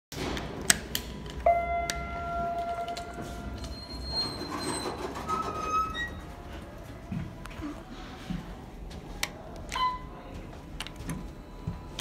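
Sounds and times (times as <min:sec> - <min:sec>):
elevator chime: 0:01.5 - 0:06.4.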